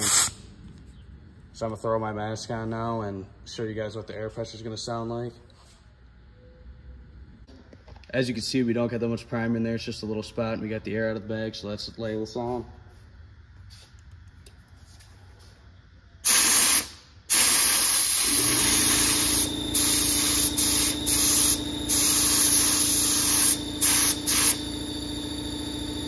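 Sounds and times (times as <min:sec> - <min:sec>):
paint spray gun hissing: 0:00.0 - 0:00.4, 0:16.2 - 0:24.7
short air blast: 0:00.0 - 0:00.4, 0:16.2 - 0:24.7
steady low hum: 0:00.0 - 0:26.0.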